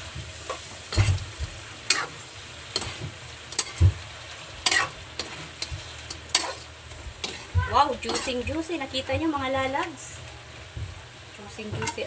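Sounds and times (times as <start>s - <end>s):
sauce sizzling: 0.0s - 12.0s
metal spatula scraping a wok: 0.4s - 1.3s, 1.9s - 3.8s, 4.6s - 8.6s, 11.8s - 12.0s.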